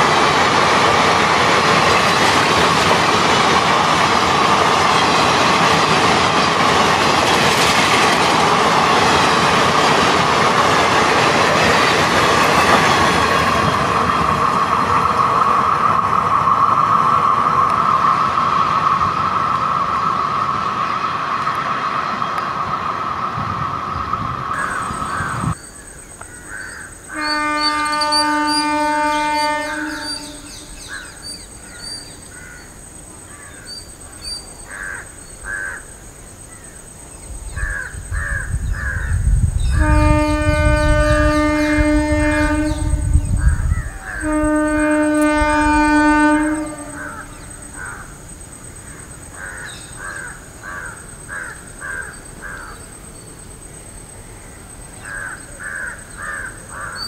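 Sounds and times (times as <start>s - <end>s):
train rumble: 0.0s - 57.0s
crows cawing: 24.6s - 25.6s, 26.3s - 27.0s, 32.3s - 32.7s, 34.7s - 35.9s, 37.6s - 39.2s, 47.0s - 48.2s, 49.4s - 52.8s, 55.0s - 57.0s
train air horn blasts: 27.1s - 30.8s, 39.7s - 43.4s, 44.0s - 47.3s.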